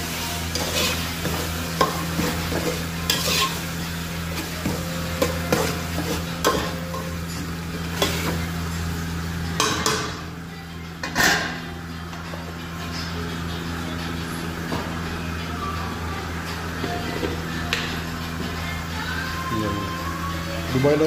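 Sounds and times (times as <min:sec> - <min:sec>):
oil sizzling: 0:00.0 - 0:10.4
metal ladle scraping pot: 0:00.5 - 0:03.7.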